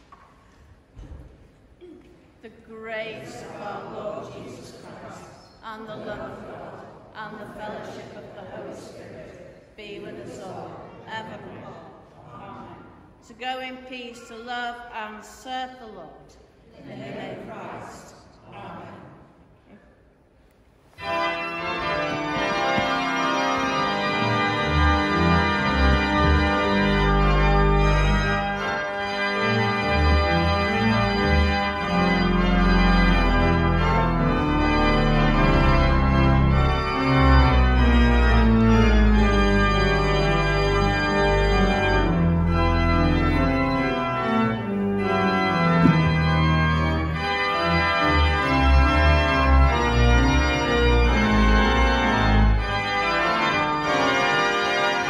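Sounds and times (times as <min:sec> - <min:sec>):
church organ playing chords: 0:20.9 - 0:55.0.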